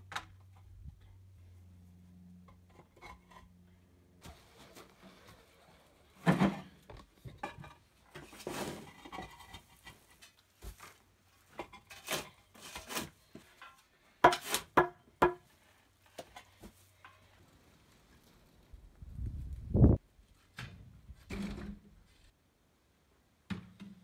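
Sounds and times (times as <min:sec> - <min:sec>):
concrete pavers knocking and scraping: 0:06.2 - 0:15.5.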